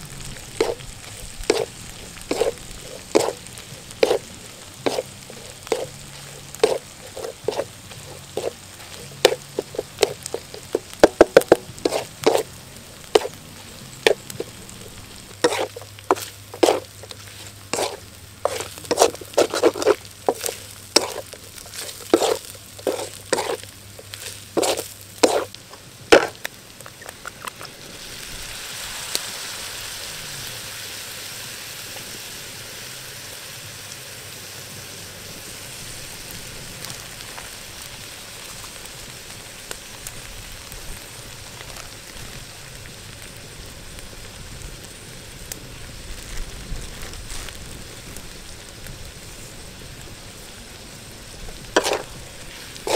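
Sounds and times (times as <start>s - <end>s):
sizzling hiss in wok: 0.0s - 52.9s
spatula scraping metal wok: 0.1s - 26.4s, 51.6s - 52.9s.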